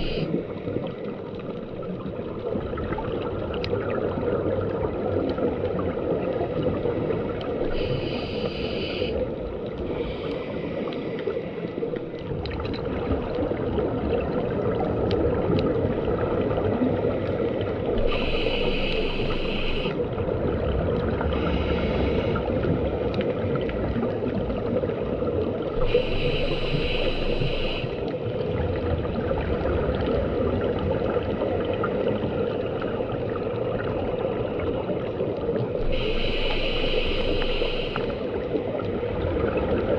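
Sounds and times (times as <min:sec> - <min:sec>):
diver breathing through regulator: 0:00.0 - 0:00.3, 0:07.6 - 0:11.7, 0:18.0 - 0:20.0, 0:21.3 - 0:22.6, 0:25.8 - 0:28.0, 0:35.8 - 0:38.4
muffled underwater rumble: 0:00.0 - 0:39.9.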